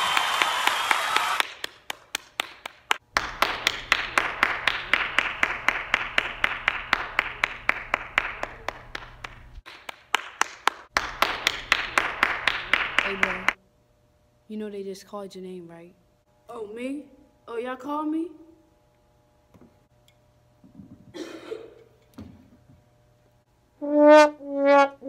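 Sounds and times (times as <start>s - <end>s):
applause: 0.0s - 13.6s
person clapping steadily: 0.0s - 13.6s.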